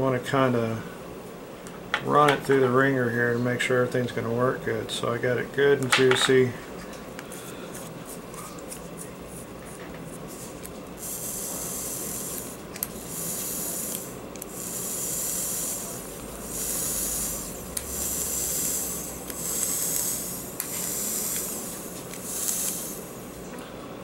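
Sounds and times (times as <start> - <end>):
coil sizzling hisses: 10.2 - 23.5.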